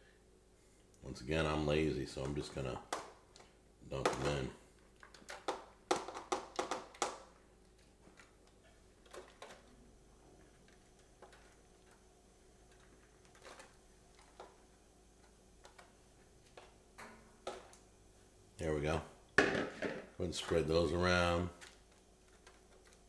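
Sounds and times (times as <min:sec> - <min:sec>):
vegetables tapping into foil pans: 0:05.1 - 0:07.4.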